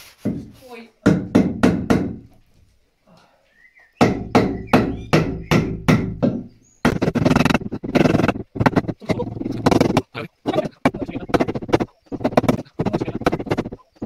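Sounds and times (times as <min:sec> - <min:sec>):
hammering on timber: 0:00.2 - 0:02.3, 0:04.0 - 0:14.0
dense harsh noise: 0:06.8 - 0:14.0.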